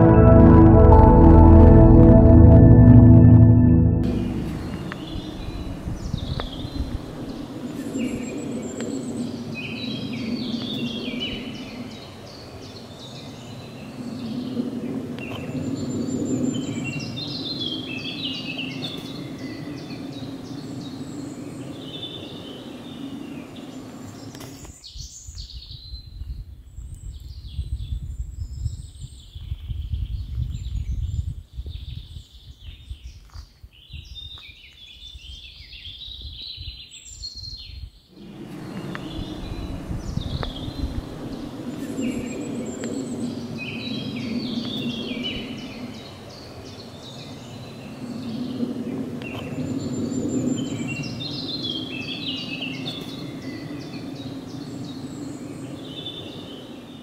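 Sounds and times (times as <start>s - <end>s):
steady low hum: 0.0s - 5.9s
uneven low rumble: 0.0s - 6.1s, 38.2s - 42.5s.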